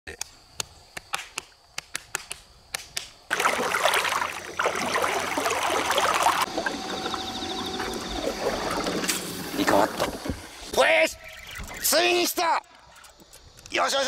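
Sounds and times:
hand slapping bare belly: 0.1s - 3.2s
water splashing and sloshing: 3.3s - 10.7s.

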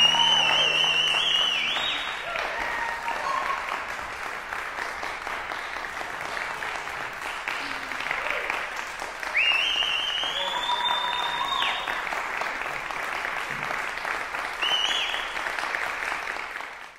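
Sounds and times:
shrill whistle: 0.0s - 2.2s, 9.3s - 12.0s, 14.6s - 15.4s
audience applauding: 0.0s - 16.9s.

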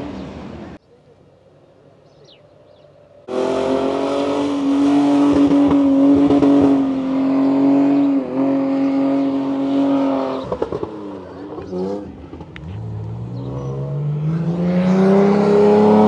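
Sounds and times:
engine at high revs: 3.3s - 16.0s.

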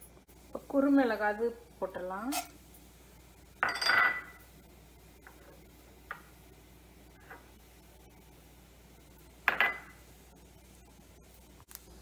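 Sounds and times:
metal kitchenware clink: 3.6s - 4.4s.

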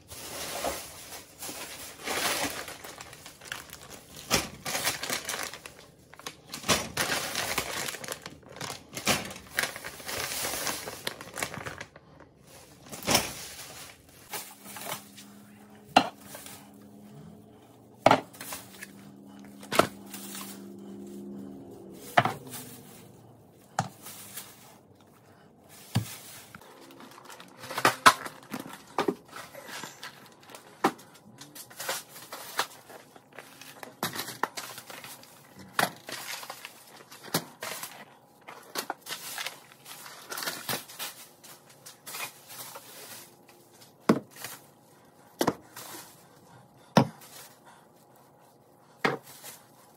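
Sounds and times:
plastic bags rustling: 0.0s - 49.9s
steady low hum: 11.8s - 49.9s.

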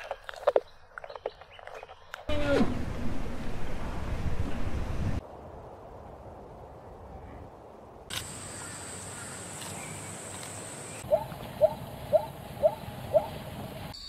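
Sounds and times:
steady background hiss: 5.2s - 14.0s
zebra yelping: 11.1s - 13.4s.

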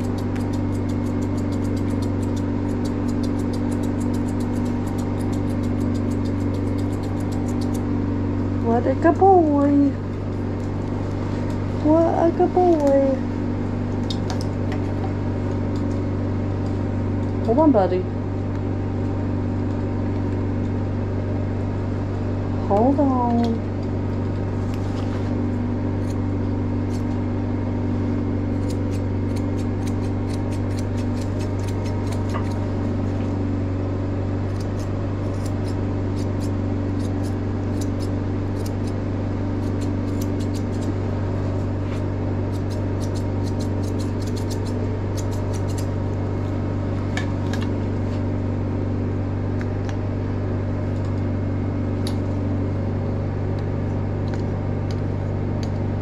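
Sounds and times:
grooming shears snipping: 0.0s - 7.9s, 28.5s - 33.2s, 34.5s - 39.0s, 39.6s - 46.0s
low machine hum: 0.0s - 56.0s.

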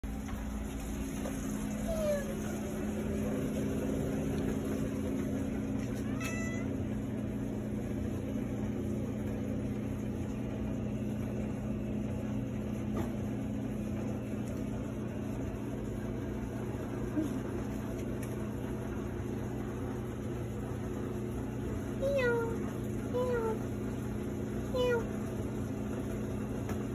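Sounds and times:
steady low hum: 0.0s - 26.9s
cat meowing: 1.9s - 2.5s, 6.0s - 6.7s, 22.0s - 22.6s, 24.7s - 25.1s.

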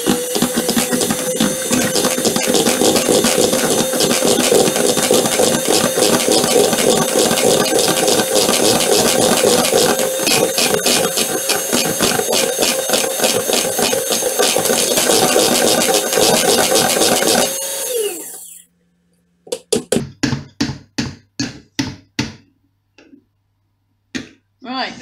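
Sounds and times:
electric hand mixer running: 0.0s - 18.7s.

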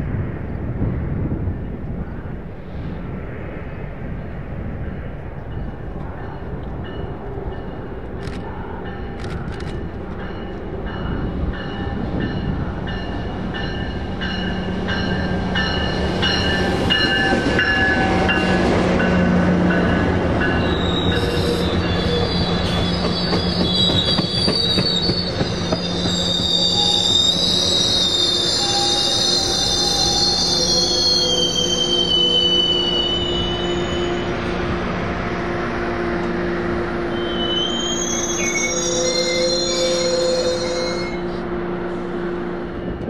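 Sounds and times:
train rolling on rails: 0.0s - 43.0s
wheels squealing: 20.6s - 34.2s.

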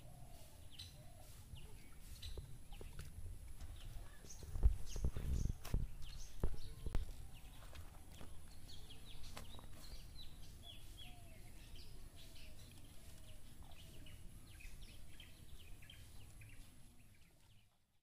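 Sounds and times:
small birds chirping: 0.0s - 18.0s.

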